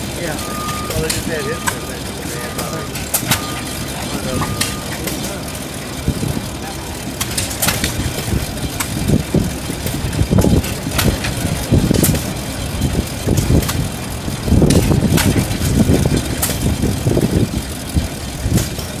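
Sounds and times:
stationary gas engine running: 0.0 - 19.0
sharp clicks: 9.8 - 13.9.

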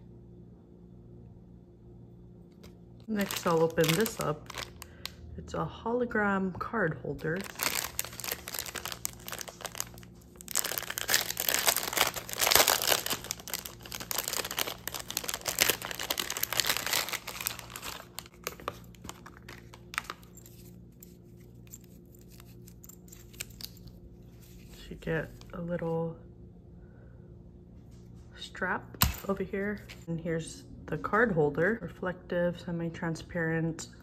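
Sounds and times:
plastic packaging crinkling and tearing: 3.0 - 5.2, 7.2 - 24.6.

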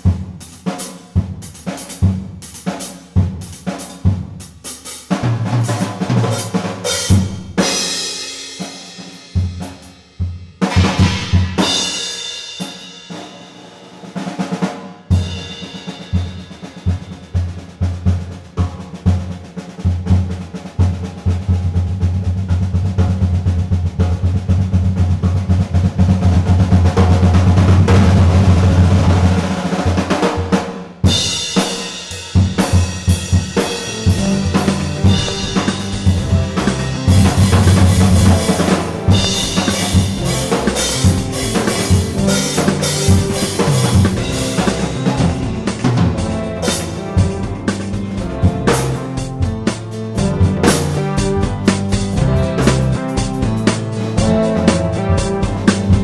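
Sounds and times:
acoustic drum kit: 0.0 - 56.0
backing music track: 31.0 - 56.0
cymbal hits: 31.1 - 48.0.

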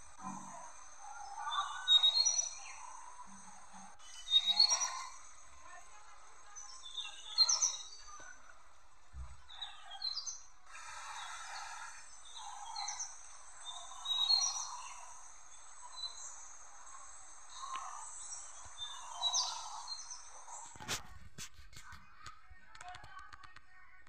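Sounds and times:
birds chirping and whistling: 0.0 - 5.7, 6.5 - 8.5, 9.4 - 20.8.

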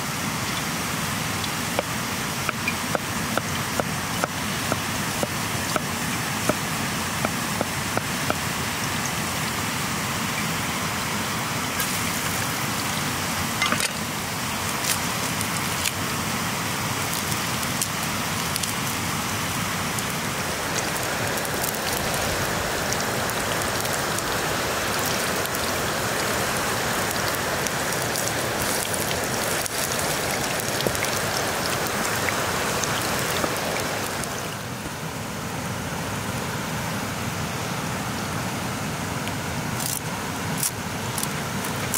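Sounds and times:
wood fire crackling: 11.8 - 34.5
garlic sizzling in oil: 19.6 - 34.6.

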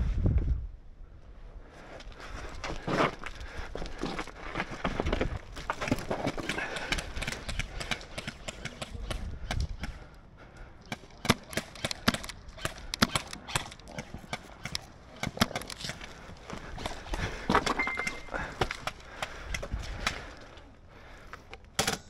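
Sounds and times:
airsoft gunfire: 6.5 - 10.0, 10.9 - 15.7.

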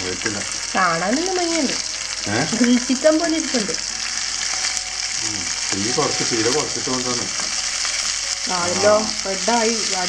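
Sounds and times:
chicken sizzling in a pan: 0.0 - 10.0
person speaking: 2.2 - 2.9, 5.2 - 7.4, 8.5 - 9.2.

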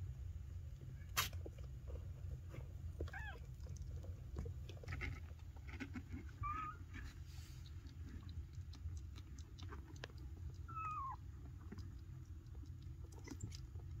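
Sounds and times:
kitten mewing: 10.6 - 11.2.

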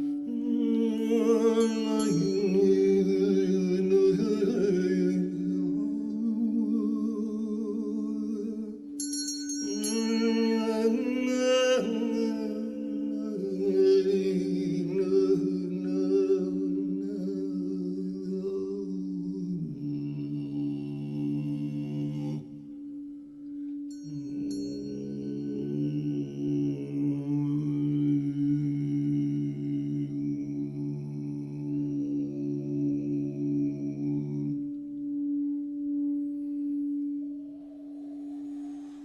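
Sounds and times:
wordless wavering voice: 0.0 - 39.0
bright ringing tone: 7.9 - 13.5, 22.9 - 27.1, 35.0 - 39.0
steady low drone: 9.6 - 39.0.

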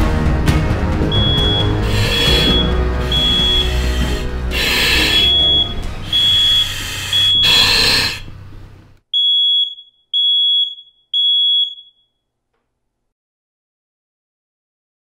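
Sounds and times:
low rumble: 0.8 - 8.8
smoke alarm beeping: 1.1 - 8.3, 9.1 - 12.2
hissing bursts: 1.1 - 8.5.

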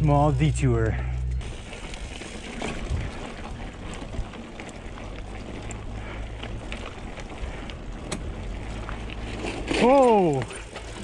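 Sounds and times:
mountain bike on rocky trail: 0.0 - 11.0.

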